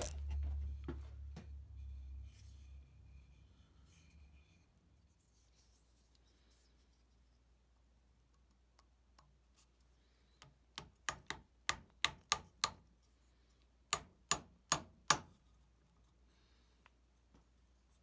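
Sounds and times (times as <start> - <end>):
hammer tapping wooden wedge: 10.7 - 12.8, 13.9 - 15.3.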